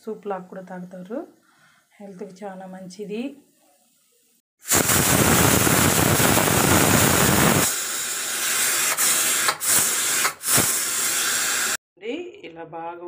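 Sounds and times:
pressure cooker whistling: 4.6s - 11.8s.

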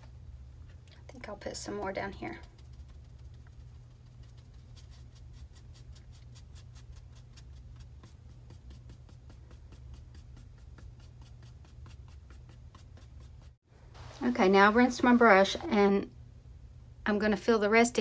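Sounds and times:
faint low hum: 0.0s - 18.0s
brush tapping paint on canvas: 1.8s - 15.8s.

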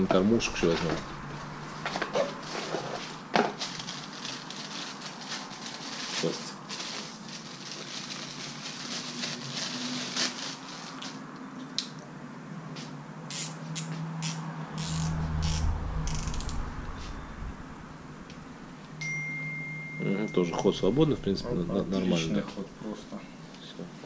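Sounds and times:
plastic bag crinkling: 2.4s - 11.2s
fishing reel whirring: 14.2s - 16.7s
high steady tone: 14.8s - 22.8s.

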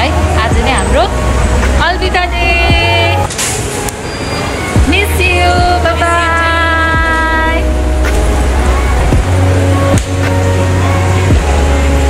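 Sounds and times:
heavy steady bass: 0.0s - 3.4s, 4.8s - 12.0s
background music with held chords: 0.0s - 12.0s.

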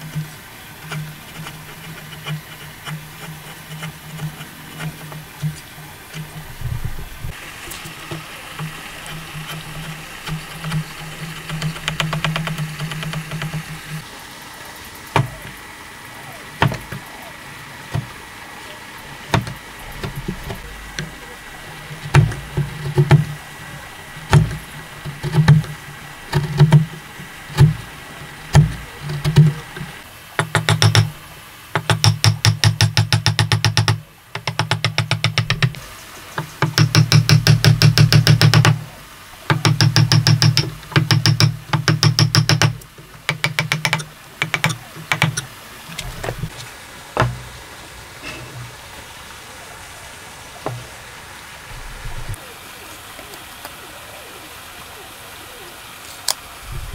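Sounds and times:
mallet striking chisel into wood: 30.4s - 31.1s, 31.8s - 35.7s, 36.6s - 38.8s, 39.5s - 45.4s, 47.2s - 47.5s.

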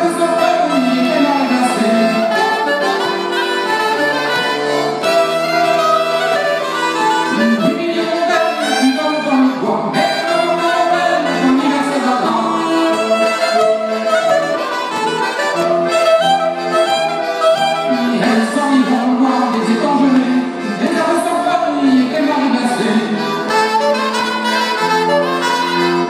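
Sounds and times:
man singing: 0.0s - 2.5s, 7.3s - 13.6s, 17.9s - 23.3s
bombarde playing: 0.0s - 26.0s
button accordion: 0.0s - 26.0s.

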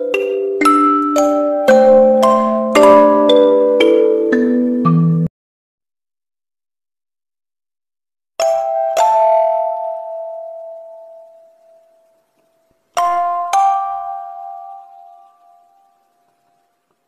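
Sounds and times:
two-note ding-dong chime: 0.0s - 5.3s, 8.4s - 11.0s, 13.0s - 15.6s.

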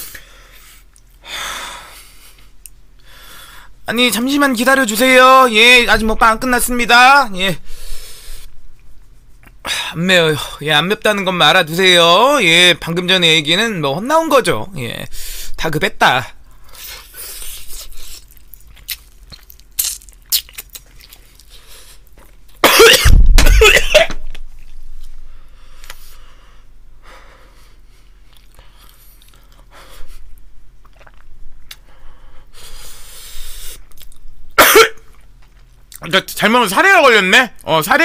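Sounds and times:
man coughing: 22.6s - 24.3s, 34.6s - 35.1s.

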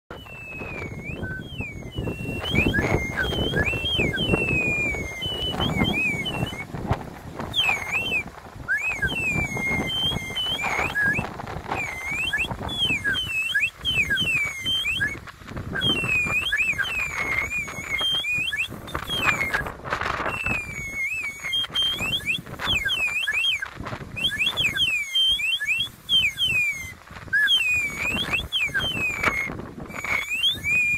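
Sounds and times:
wind on microphone: 0.1s - 30.9s
high swooping chirps: 0.2s - 6.7s.

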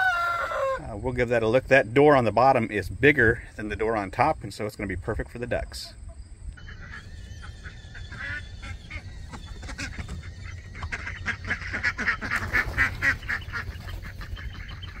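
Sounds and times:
ducks quacking: 6.6s - 15.0s.

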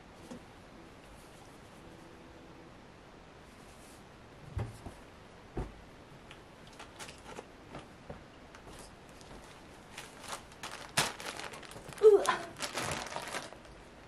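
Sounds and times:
soft thumps on wooden floor: 4.5s - 5.8s
fabric rustling: 8.6s - 14.0s.

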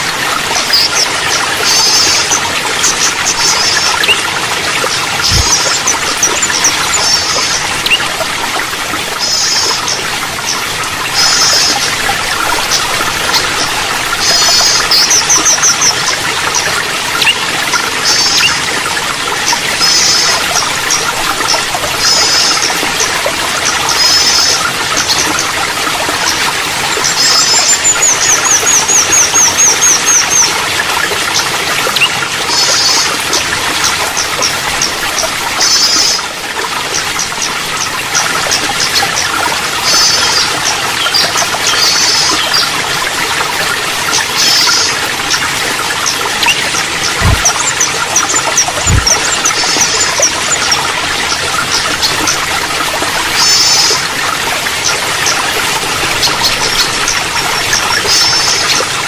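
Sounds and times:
water trickling: 0.0s - 59.0s
low thump: 47.2s - 47.6s.

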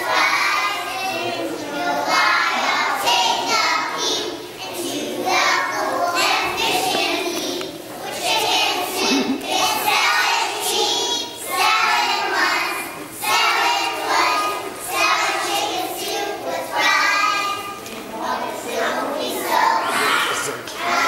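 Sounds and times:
children singing in unison: 0.0s - 21.0s.

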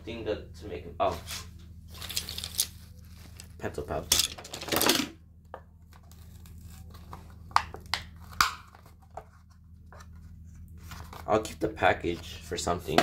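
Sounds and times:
low steady hum: 0.0s - 13.0s
packaging crinkling and rustling: 1.9s - 3.6s.

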